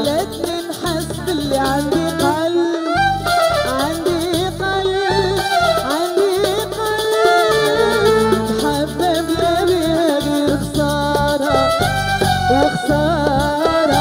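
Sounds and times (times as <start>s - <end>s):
shaker-like percussion: 0.0s - 2.5s, 5.4s - 14.0s
backing music with steady beat: 0.0s - 14.0s
woman singing into microphone: 0.0s - 14.0s.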